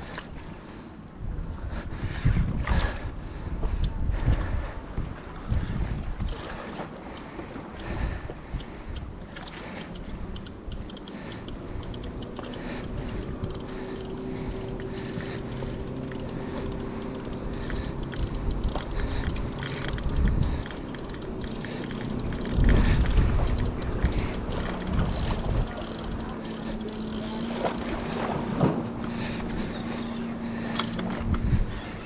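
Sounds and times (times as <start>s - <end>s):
wind gusts on microphone: 1.2s - 6.7s, 17.4s - 20.9s, 22.2s - 26.2s
fishing reel clicking rapidly: 6.2s - 7.9s, 8.6s - 28.2s, 30.7s - 31.0s.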